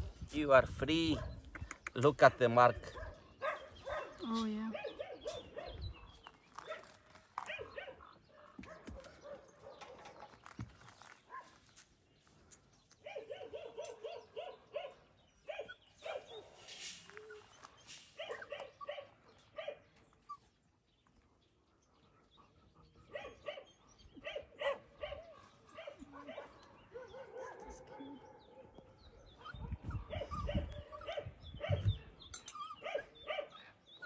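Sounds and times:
dog barking: 0:02.4 - 0:05.8, 0:06.6 - 0:10.1, 0:13.0 - 0:16.5, 0:18.2 - 0:19.8, 0:23.1 - 0:31.9, 0:32.8 - 0:33.6.

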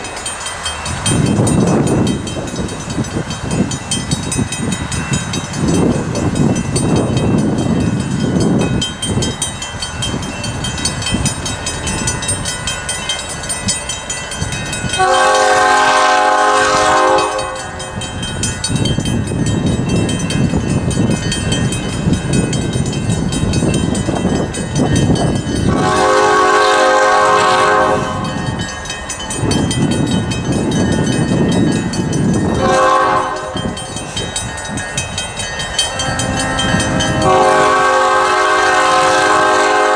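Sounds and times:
diesel locomotive rumbling: 0:00.0 - 0:39.9
train horn blasts: 0:14.9 - 0:18.0, 0:25.7 - 0:28.4, 0:32.5 - 0:33.8, 0:35.9 - 0:39.9.

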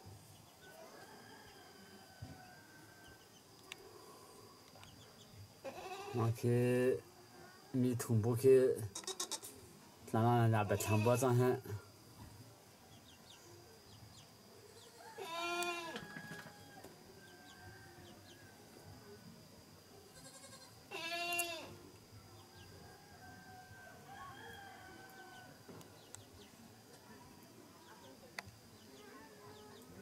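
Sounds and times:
goat bleating: 0:05.6 - 0:06.2, 0:08.9 - 0:09.4, 0:15.2 - 0:16.0, 0:20.2 - 0:21.7.

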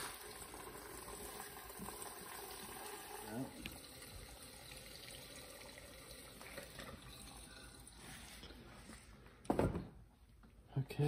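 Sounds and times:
gasoline pouring through funnel: 0:00.0 - 0:08.5.

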